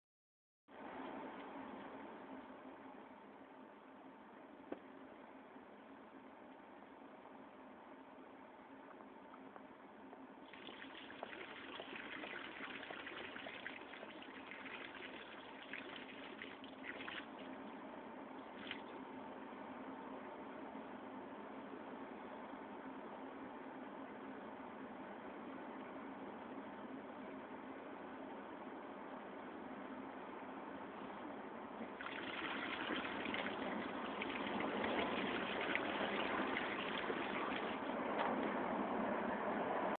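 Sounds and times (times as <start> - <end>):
fountain jets splashing into basin: 10.5 - 17.5, 32.0 - 37.9.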